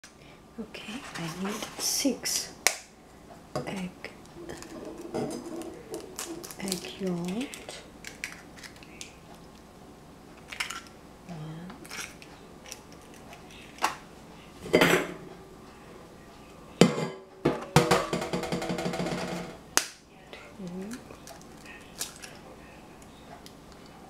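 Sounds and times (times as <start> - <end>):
bowls and utensils clattering: 4.4 - 6.9, 14.6 - 15.2, 16.8 - 19.5
eggs being cracked: 4.5 - 9.4.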